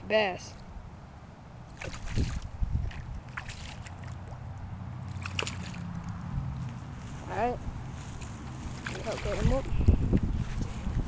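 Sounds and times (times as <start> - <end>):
fish thrashing and splashing: 1.7 - 6.7, 8.2 - 9.8.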